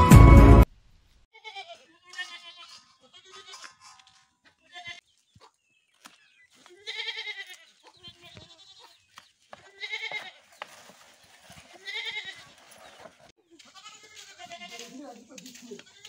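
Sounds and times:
goat bleating: 1.3 - 5.5, 6.6 - 10.6, 11.7 - 16.0.

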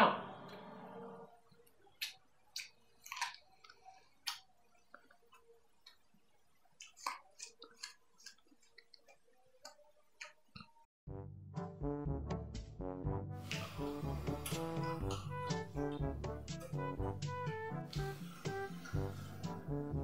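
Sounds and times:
person chewing apple crunches: 2.0 - 6.0, 6.8 - 10.4.

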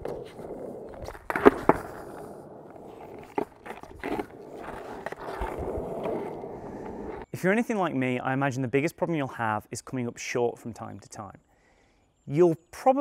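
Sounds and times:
skateboard clacks: 0.0 - 7.2
skateboard wheels rolling: 0.0 - 7.3.

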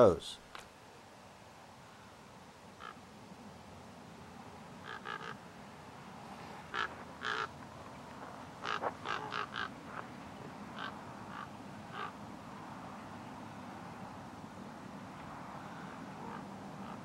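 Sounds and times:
ravens calling: 1.8 - 3.1, 4.6 - 13.6, 14.6 - 17.0.

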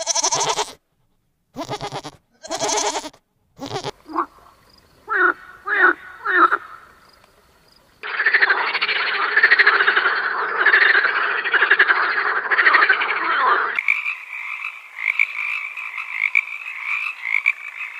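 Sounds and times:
frogs croaking in chorus: 3.6 - 17.9.

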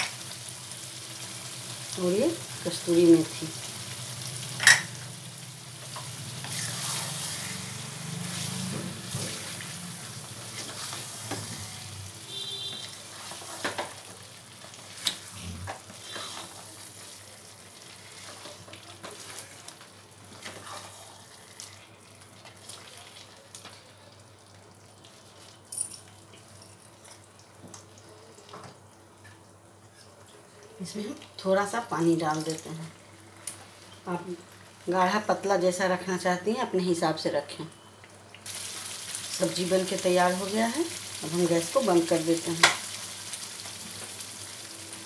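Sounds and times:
soft sizzle: 0.0 - 45.0
spatula scraping thick gravy: 16.0 - 16.6, 20.4 - 21.1.

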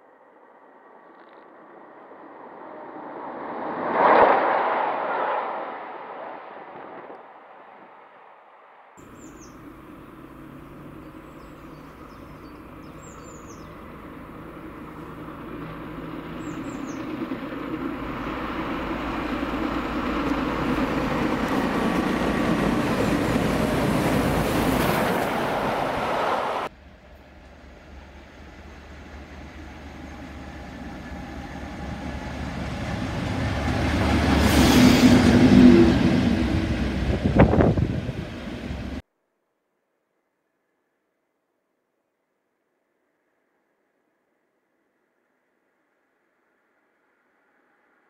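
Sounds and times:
distant train: 0.0 - 39.0
small birds chirping: 9.0 - 18.5
steam locomotive approaching: 9.0 - 39.0.

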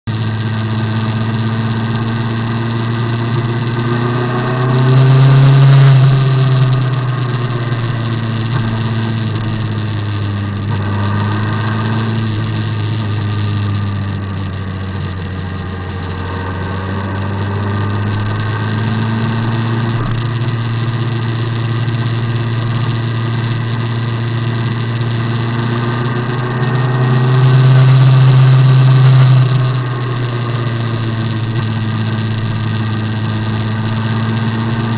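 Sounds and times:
motorcycle engine running: 0.0 - 34.9.

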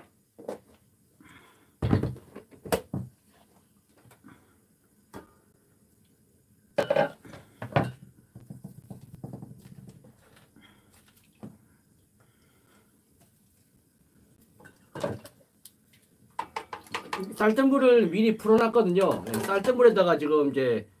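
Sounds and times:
kitchenware clattering on table: 6.8 - 8.1, 16.4 - 17.3.

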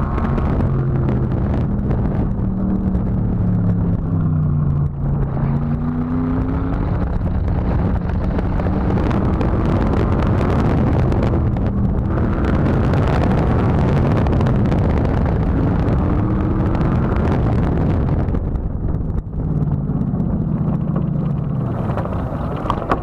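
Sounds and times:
sports car engine revving: 0.0 - 22.8.

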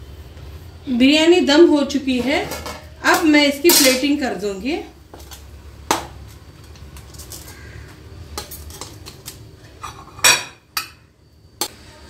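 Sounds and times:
metal spoon scraping a pot: 2.1 - 4.0, 6.6 - 11.0.

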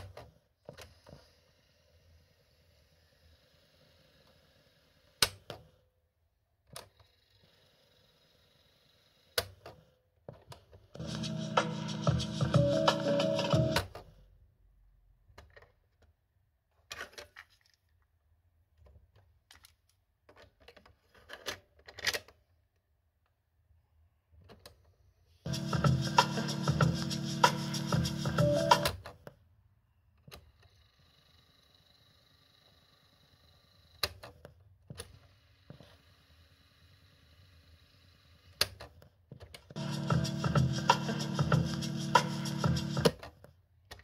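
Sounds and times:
music from speaker: 11.0 - 13.8, 25.5 - 28.9, 39.8 - 43.1.

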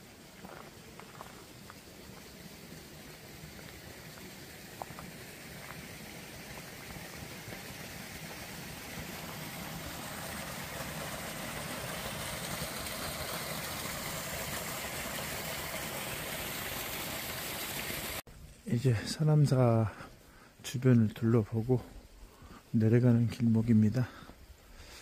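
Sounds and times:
stream running over rocks: 0.0 - 18.2.

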